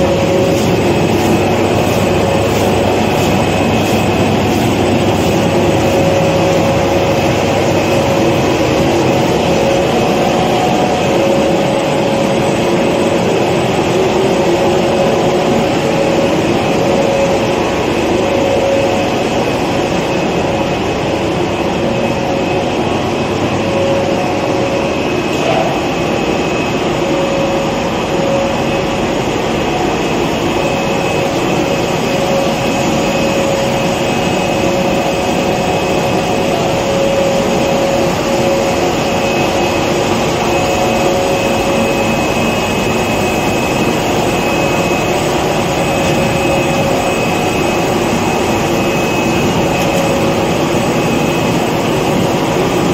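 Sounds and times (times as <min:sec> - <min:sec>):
humming tone: 0:00.0 - 0:52.9
machine rollers droning: 0:00.0 - 0:52.9.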